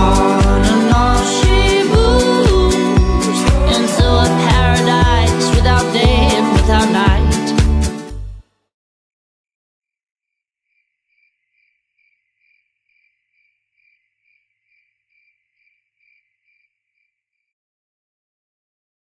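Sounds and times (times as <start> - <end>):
cricket chirping: 11.1 - 17.1.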